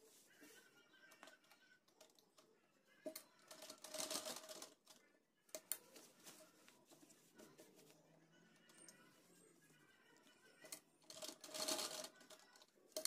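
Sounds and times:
sewing machine stitching: 11.1 - 12.5.

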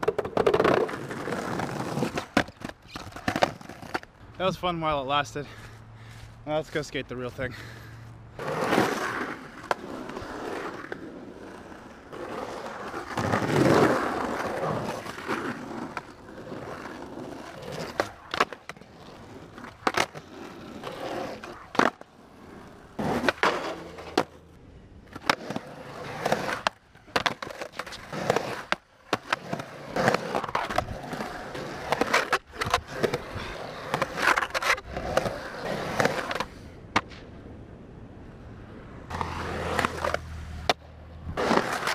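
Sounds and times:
skateboard clacking on ground: 0.0 - 4.1, 25.1 - 37.3
skateboard wheels rolling on concrete: 0.0 - 41.9.

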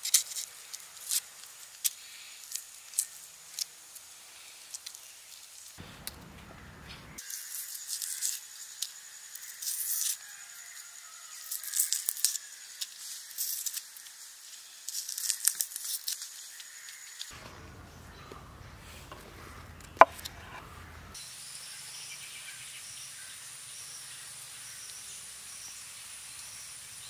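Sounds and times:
onion skins crackling and tearing: 0.0 - 6.2, 7.2 - 10.2, 11.4 - 17.3.

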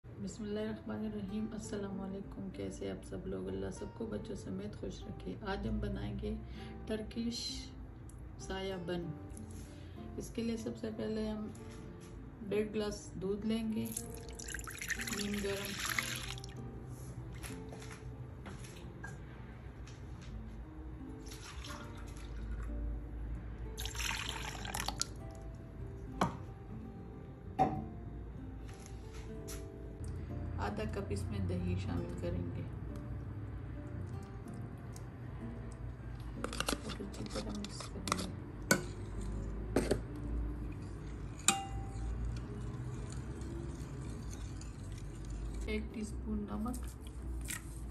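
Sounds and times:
soft background music: 0.0 - 47.9
milk pouring and splashing: 13.8 - 16.6, 21.2 - 22.7, 23.8 - 25.4.

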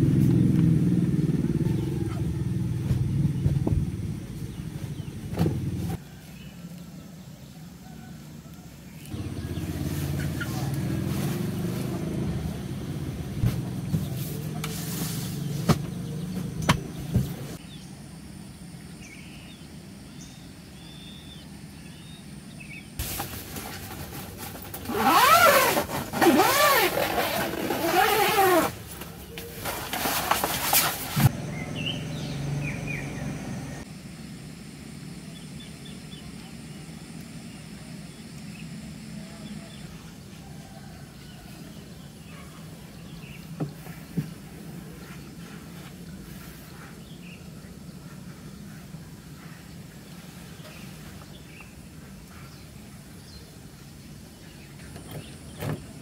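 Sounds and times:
engine revving: 0.0 - 6.0, 9.1 - 17.6, 31.2 - 33.9.

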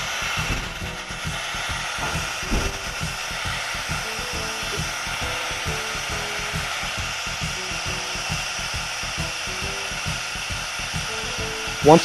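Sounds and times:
fluid extractor hissing and pulsing: 0.0 - 12.0.

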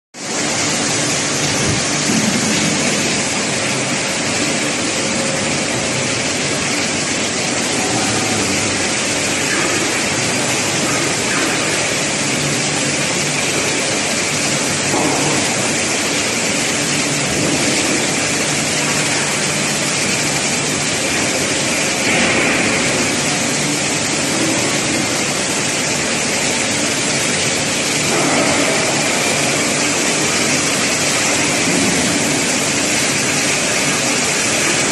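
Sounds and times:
loud machinery din: 0.3 - 34.9.

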